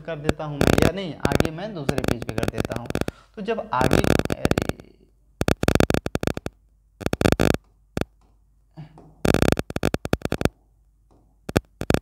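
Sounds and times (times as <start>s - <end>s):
rapid clicking and tapping on screen: 0.0s - 3.2s, 3.8s - 8.4s, 9.0s - 12.0s.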